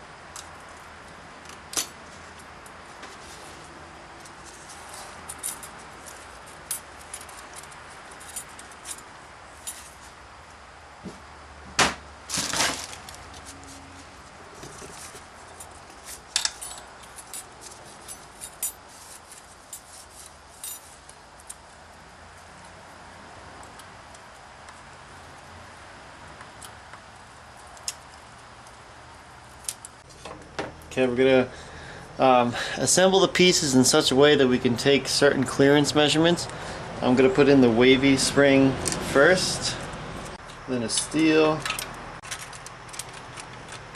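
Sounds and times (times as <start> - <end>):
small metal clicks and clinks: 15.5 - 20.8.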